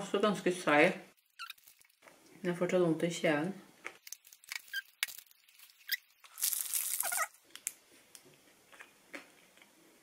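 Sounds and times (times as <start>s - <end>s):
foil wrapper crinkling: 1.2s - 2.0s, 4.0s - 7.8s.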